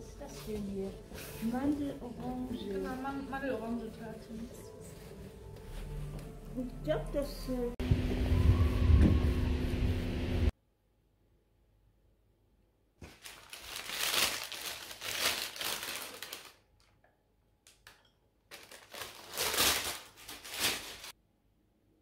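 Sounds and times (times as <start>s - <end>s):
paper bag rustling: 13.0s - 16.6s, 18.5s - 21.2s.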